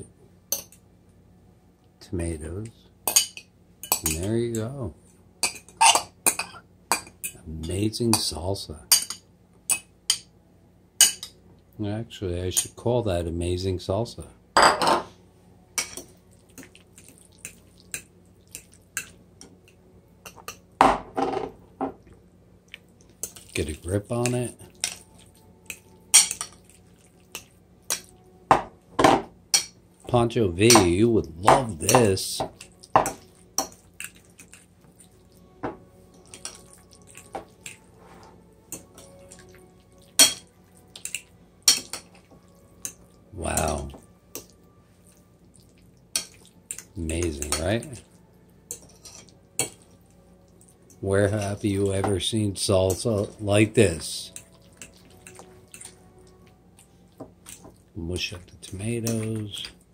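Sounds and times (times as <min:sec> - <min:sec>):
fork mashing food squishes: 0:15.9 - 0:20.5, 0:22.6 - 0:28.2, 0:30.7 - 0:35.4, 0:36.1 - 0:51.6, 0:54.3 - 0:59.8.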